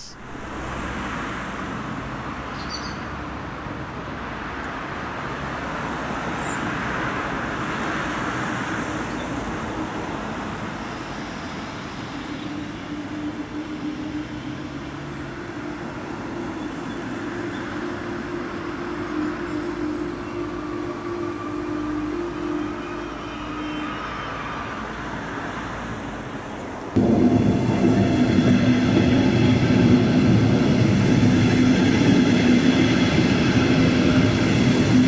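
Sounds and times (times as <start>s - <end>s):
train wheels rumbling on rail: 4.7s - 24.9s, 26.6s - 35.0s
humming tone: 11.8s - 25.0s, 27.0s - 35.0s.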